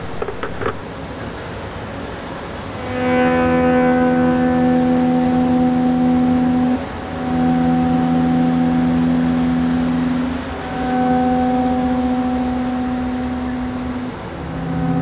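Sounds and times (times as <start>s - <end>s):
loud multi-pitch horn tone: 2.8s - 15.0s.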